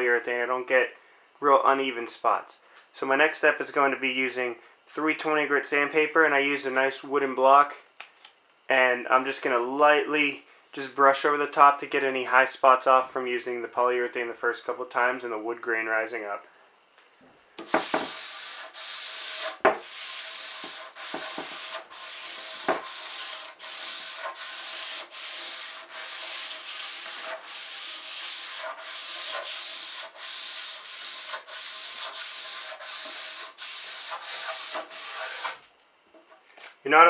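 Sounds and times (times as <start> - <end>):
sanding block knocks: 17.6 - 35.6
sandpaper rubbing on wood: 17.6 - 35.6.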